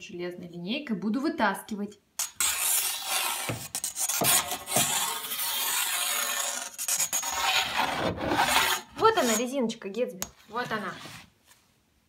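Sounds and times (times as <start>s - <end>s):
metal ruler scraping floor: 2.2s - 9.5s.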